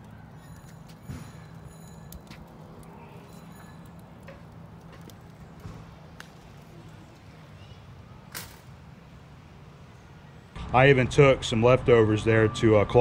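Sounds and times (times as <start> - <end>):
highway traffic rumble: 0.0 - 13.0.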